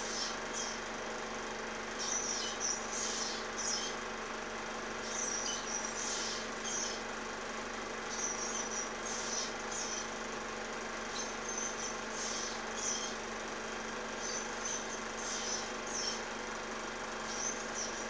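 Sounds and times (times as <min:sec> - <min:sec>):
ospreys chirping: 0:01.9 - 0:04.0, 0:05.0 - 0:07.0, 0:08.0 - 0:10.2, 0:11.1 - 0:13.2, 0:14.2 - 0:16.2, 0:17.2 - 0:18.0.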